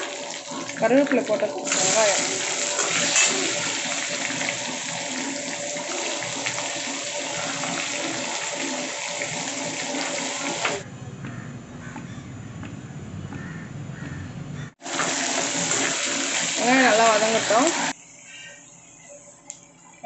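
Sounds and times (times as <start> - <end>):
onions sizzling in hot oil: 0.0 - 10.8, 14.8 - 17.9.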